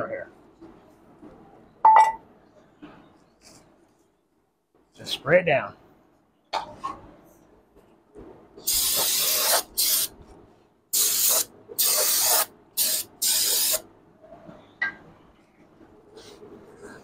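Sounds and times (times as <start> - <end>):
aerosol spray can hissing: 8.7 - 10.1, 11.0 - 13.8.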